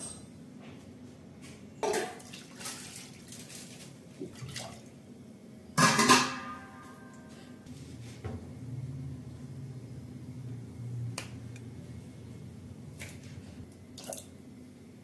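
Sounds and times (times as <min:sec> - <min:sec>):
water pouring and splashing: 0:02.0 - 0:04.9.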